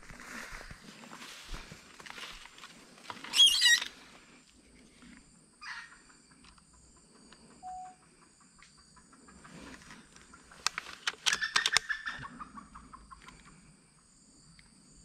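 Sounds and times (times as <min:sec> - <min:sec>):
faint ticks: 0:06.3 - 0:11.8, 0:14.4 - 0:14.8.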